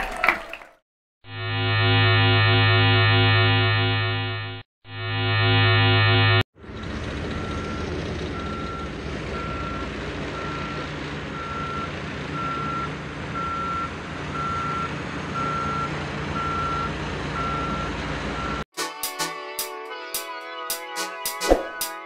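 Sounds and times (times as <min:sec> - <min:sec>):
heavy vehicle engine running: 0:06.6 - 0:18.6
reversing alarm beeping: 0:07.3 - 0:18.6.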